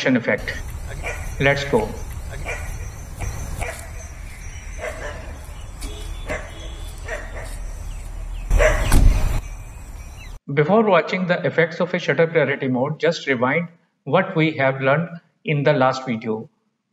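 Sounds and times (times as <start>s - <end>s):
steady low rumble: 0.4s - 10.2s
dog barking: 0.9s - 1.4s, 2.3s - 4.1s, 4.7s - 7.7s, 8.5s - 8.9s.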